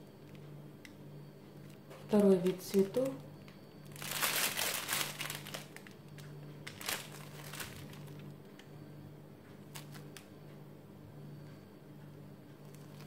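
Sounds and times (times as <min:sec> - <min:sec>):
plastic piping bag crinkling: 0:01.6 - 0:08.3, 0:09.6 - 0:10.2.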